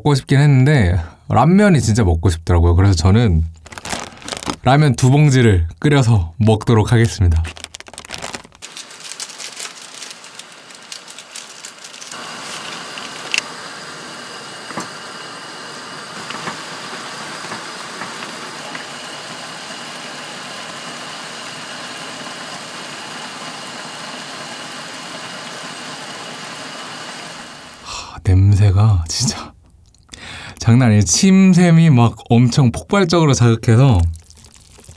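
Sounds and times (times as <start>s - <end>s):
water boiling and bubbling: 7.6s - 27.7s, 33.8s - 34.9s
broth bubbling with pops: 33.9s - 34.9s.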